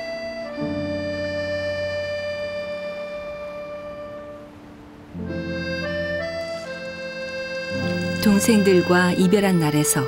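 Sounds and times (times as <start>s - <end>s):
sustained instrument chord: 0.0s - 10.0s.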